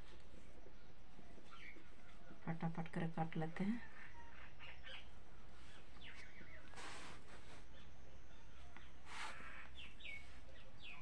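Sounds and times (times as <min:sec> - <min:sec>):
small birds chirping: 0:00.0 - 0:11.0
brief scraping hisses: 0:06.7 - 0:07.6, 0:09.1 - 0:09.6.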